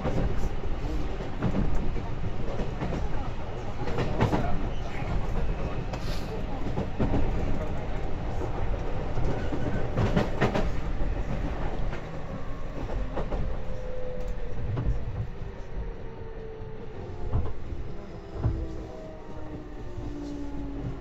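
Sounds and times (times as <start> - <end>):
train running rumble: 0.0 - 21.0.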